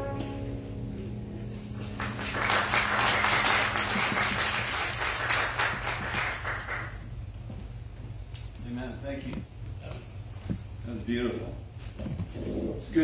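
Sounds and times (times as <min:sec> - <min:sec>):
congregation applauding: 0:01.7 - 0:07.1.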